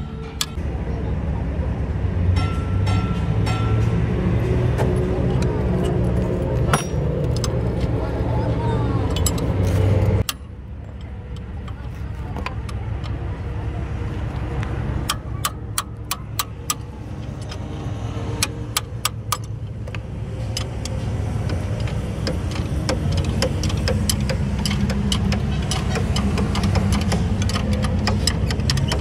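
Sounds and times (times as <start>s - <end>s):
low engine rumble: 0.0s - 29.0s
spanners clicking on bolts: 15.0s - 29.0s.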